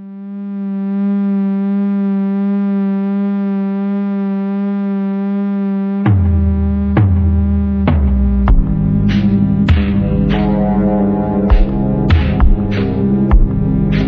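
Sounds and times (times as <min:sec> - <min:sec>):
long held wobbly note: 0:00.0 - 0:14.0
deep bass: 0:06.0 - 0:14.0
heavy drum beat: 0:07.9 - 0:14.0.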